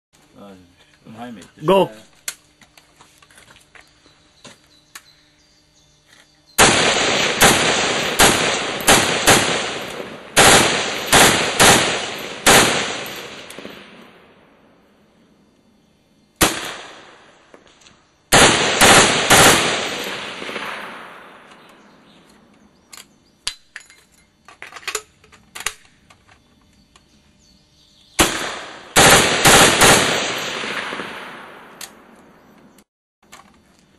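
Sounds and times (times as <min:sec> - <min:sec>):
rifle shots echoing: 0:06.6 - 0:14.6, 0:16.4 - 0:17.6, 0:18.3 - 0:22.0, 0:28.2 - 0:32.2.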